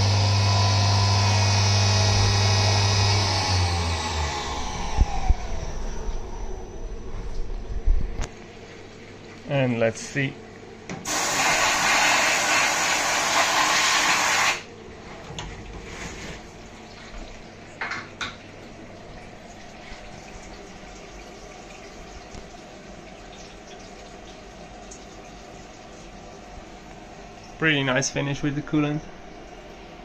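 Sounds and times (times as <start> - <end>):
low steady hum: 0.0 - 11.0
coolant spraying and splashing: 11.0 - 14.7.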